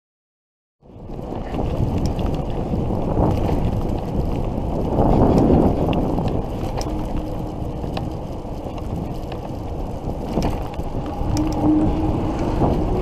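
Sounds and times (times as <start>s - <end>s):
wind buffeting microphone: 0.8s - 13.0s
faint clicks: 5.2s - 11.9s.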